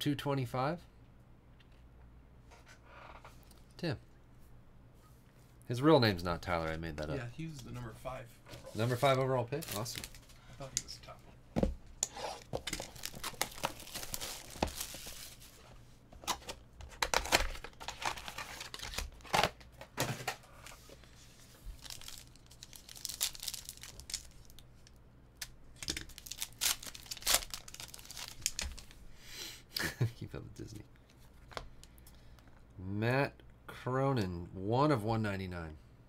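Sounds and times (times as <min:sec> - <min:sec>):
foil wrappers tearing and crinkling: 0:09.6 - 0:10.3, 0:12.4 - 0:15.6, 0:17.0 - 0:19.7, 0:21.5 - 0:24.6, 0:25.8 - 0:28.9.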